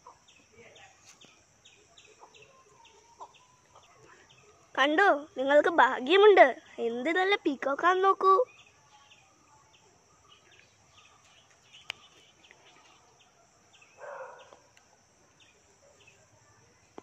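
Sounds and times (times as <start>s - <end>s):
insect drone: 0.0s - 17.0s.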